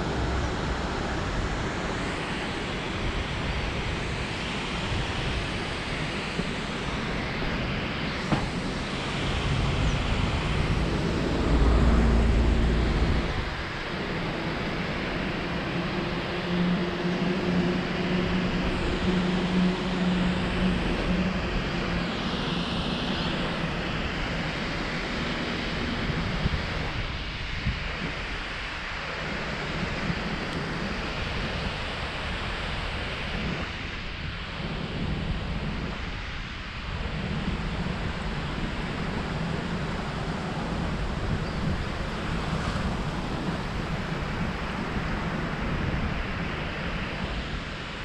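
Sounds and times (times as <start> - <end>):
wind rushing over microphone: 0.0 - 48.0
low rumble: 9.2 - 13.7.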